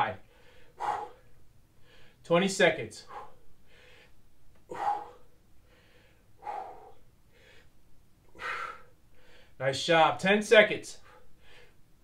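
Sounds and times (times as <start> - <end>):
man breathing hard: 0.2 - 2.2, 3.0 - 9.6, 11.0 - 11.9.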